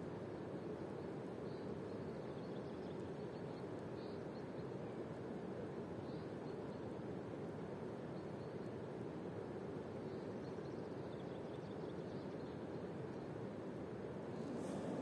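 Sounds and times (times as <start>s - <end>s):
rushing outdoor ambience: 14.0s - 15.0s.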